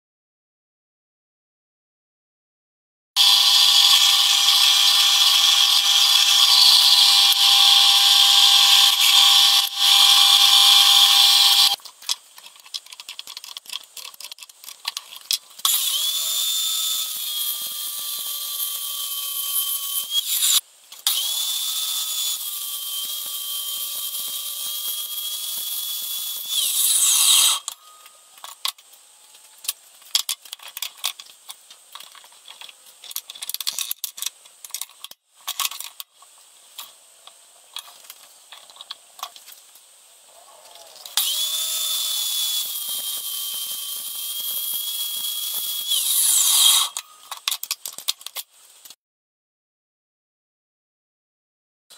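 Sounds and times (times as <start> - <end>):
drill press boring through metal: 3.2 - 11.8, 41.2 - 47.0
miter saw cutting metal: 3.2 - 11.8, 15.6 - 28.6, 41.1 - 47.4.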